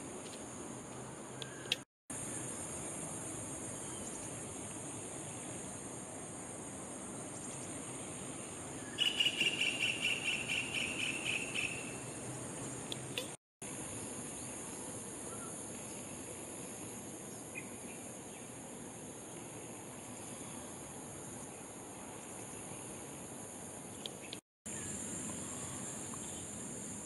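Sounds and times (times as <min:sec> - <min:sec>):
rapid pulsing insect trill: 0:02.1 - 0:12.9.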